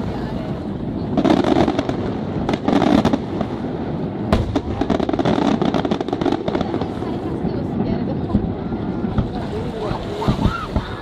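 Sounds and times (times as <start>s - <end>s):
sharp firework bang: 4.3s - 7.0s.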